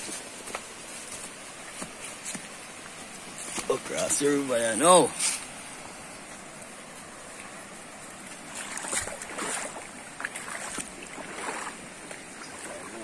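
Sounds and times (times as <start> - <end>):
river water over rocks: 0.0 - 13.0
water splashes: 7.2 - 13.0.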